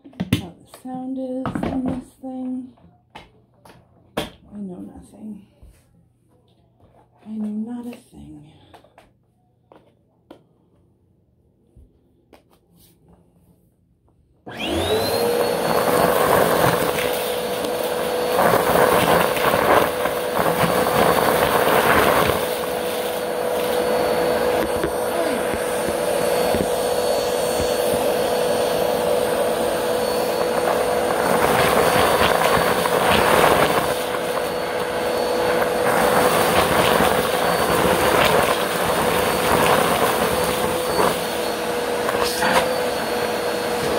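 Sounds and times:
vacuum cleaner motor whining: 14.4 - 43.9.

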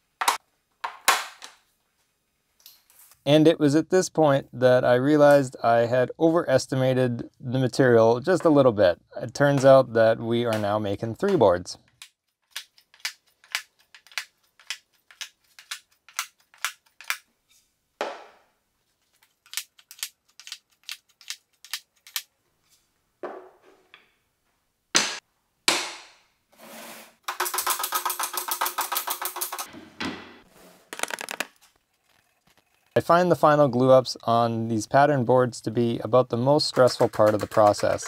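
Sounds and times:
wooden blocks clacking: 27.3 - 29.7, 30.9 - 31.6, 36.7 - 38.0
wooden blocks clattering: 30.9 - 33.0.

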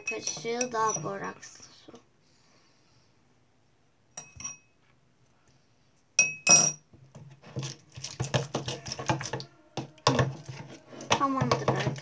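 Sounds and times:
teaspoon clinking on glass: 6.2 - 6.8
slime squishing in plastic bowl: 7.3 - 12.0.

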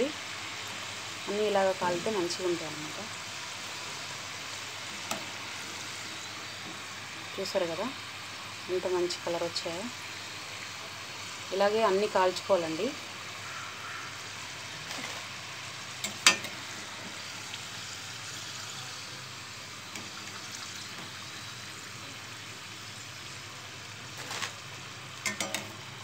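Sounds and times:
food sizzling in hot oil: 0.0 - 26.0
metal spoon clinking on pan: 16.0 - 16.5, 25.2 - 25.7.

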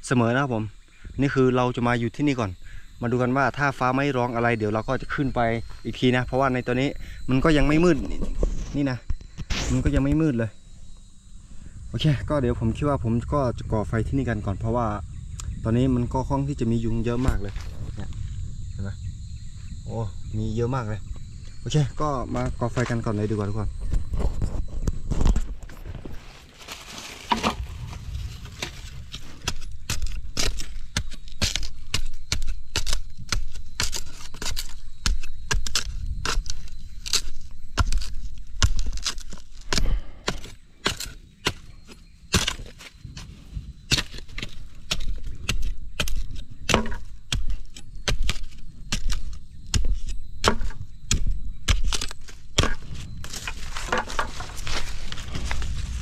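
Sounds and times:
dry wood cracking: 22.6 - 42.9, 50.4 - 56.0.

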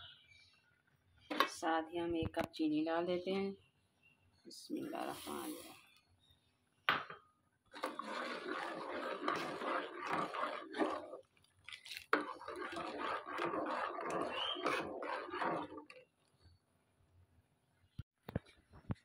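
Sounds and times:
metal spoon scraping a pot: 7.7 - 16.1.

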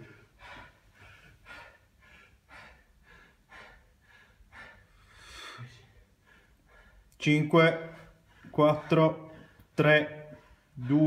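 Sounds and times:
person panting heavily: 0.0 - 11.0.

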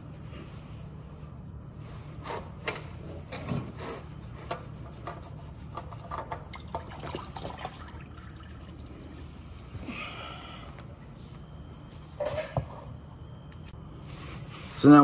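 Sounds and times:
oil trickling and dripping: 6.1 - 9.9.

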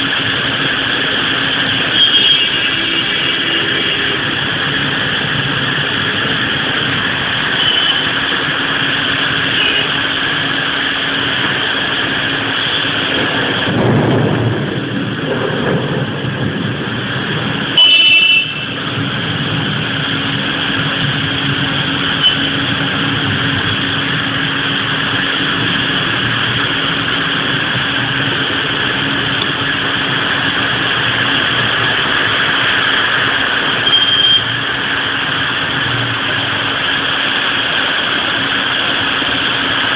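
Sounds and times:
heavy rain pouring: 0.0 - 39.9
traffic on wet street: 0.0 - 39.9
low rumble: 13.0 - 17.8.

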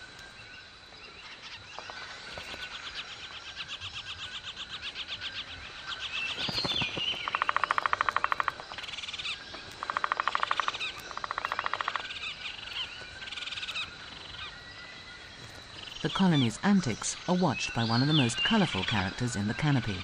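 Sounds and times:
woodpecker rattling calls: 6.2 - 14.5
woodpecker chattering notes: 6.5 - 14.4, 15.9 - 20.0.

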